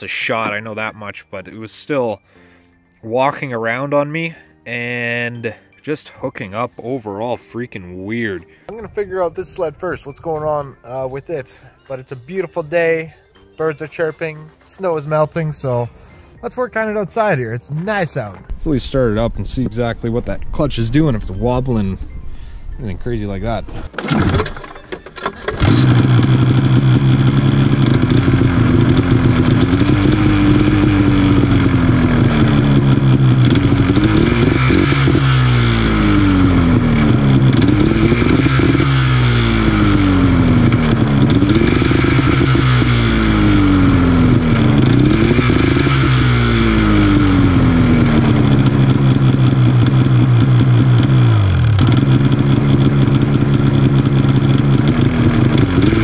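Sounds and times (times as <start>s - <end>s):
snowmobile engine revving: 25.2s - 56.0s
snowmobile engine idling: 25.4s - 56.0s.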